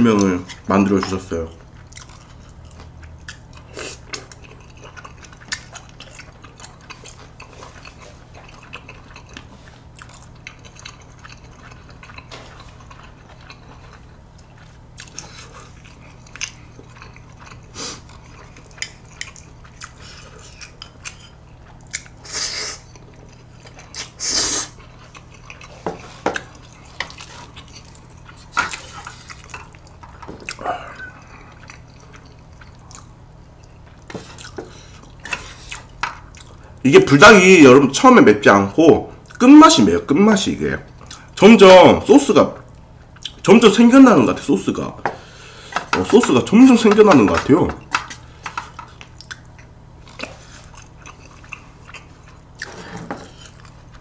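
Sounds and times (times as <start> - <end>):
chewing and biting noodles: 1.7 - 36.6.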